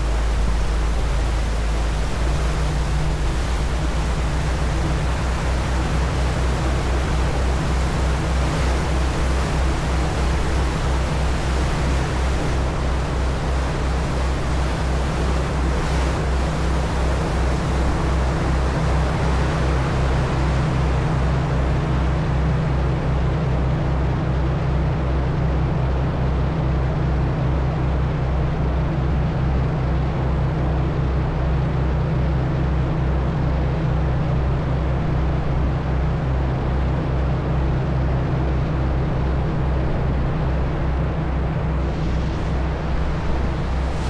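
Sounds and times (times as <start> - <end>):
water rushing in wake: 0.0 - 26.5, 32.0 - 44.0
ferry engines droning: 0.0 - 44.0.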